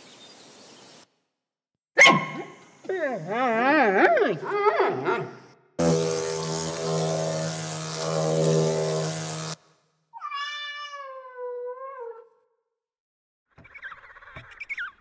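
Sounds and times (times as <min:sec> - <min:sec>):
wasp wings buzzing: 0:05.8 - 0:09.6
kitten meowing: 0:10.2 - 0:11.7.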